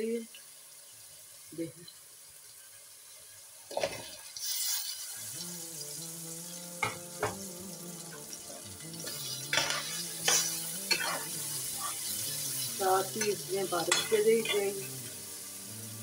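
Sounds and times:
potatoes hissing in hot pot: 0.0 - 16.0
metal spatula scraping pot: 9.1 - 12.1.

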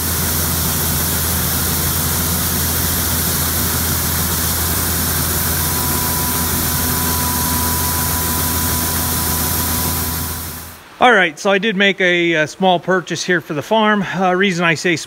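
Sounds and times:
combine harvester engine hum: 0.0 - 10.8
grain pouring hiss: 0.0 - 10.8
thin steady whine: 0.0 - 10.8.

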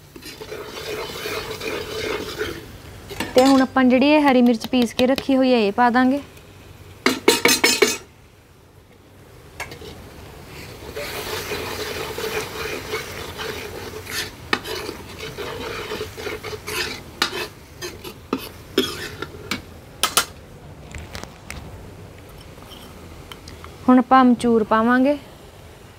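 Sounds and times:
metal ladle scraping a pan: 0.0 - 3.9, 7.1 - 8.1, 9.6 - 20.2
masala sizzling in a pan: 0.0 - 20.4.

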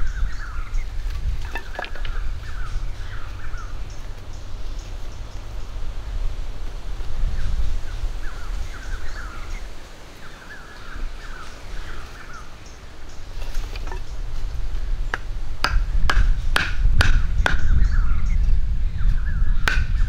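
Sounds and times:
small birds chirping: 0.0 - 6.1, 7.2 - 15.3, 17.2 - 20.0
wooden stake being hammered: 15.1 - 17.8, 19.6 - 20.0.

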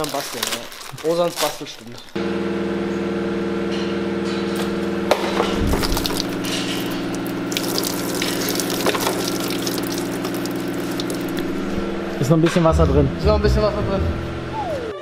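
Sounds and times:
electric pump humming: 2.2 - 15.0
water splashing and gurgling: 5.3 - 11.8.

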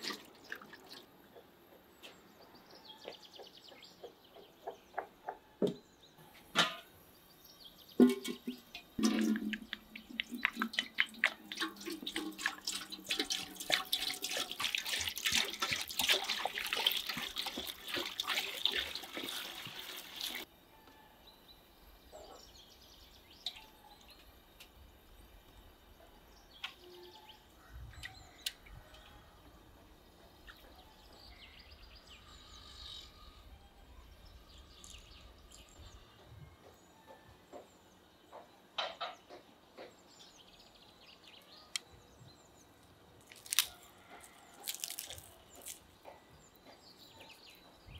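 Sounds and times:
faint birdsong: 0.2 - 11.9, 16.7 - 47.9
small splashes and knocks: 8.0 - 20.4
water pouring into metal pot: 9.0 - 20.5.

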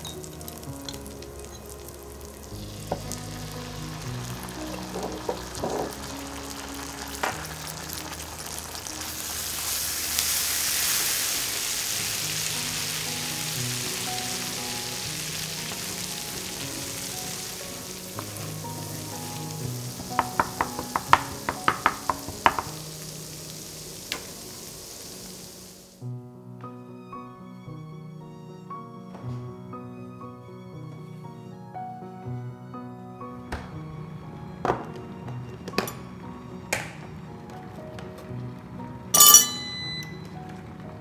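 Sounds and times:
food sizzling in a frying pan: 0.0 - 26.0.

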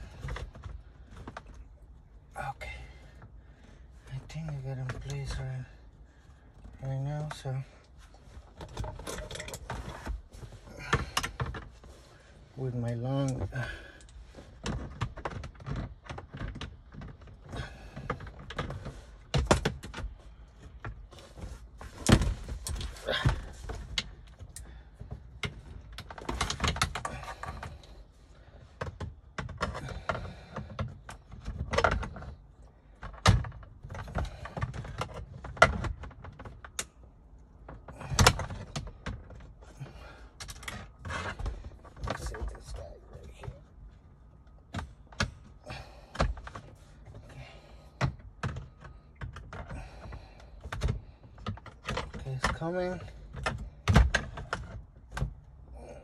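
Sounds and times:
hands and tools clicking on plastic: 10.8 - 11.8, 13.2 - 21.2, 22.0 - 55.6.

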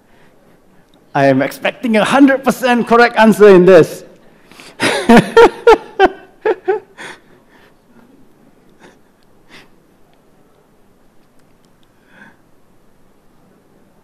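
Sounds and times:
man laughing: 4.8 - 7.2
faint breaths: 11.8 - 12.6.

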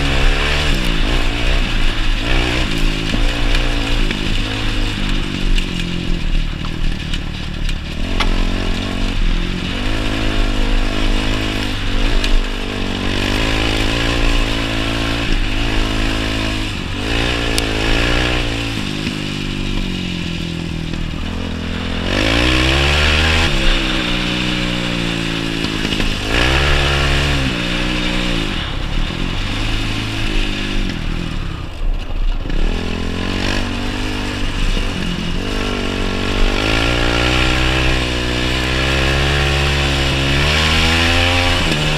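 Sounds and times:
quad bike engine revving: 0.0 - 41.9.

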